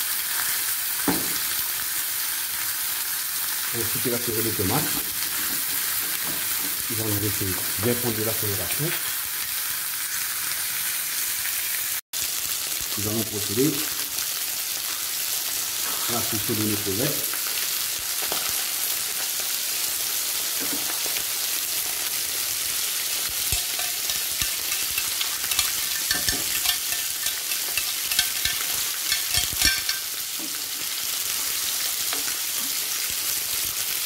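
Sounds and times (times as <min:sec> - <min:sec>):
food sizzling in pan: 0:00.0 - 0:34.0
metal tongs clicking: 0:23.5 - 0:30.1.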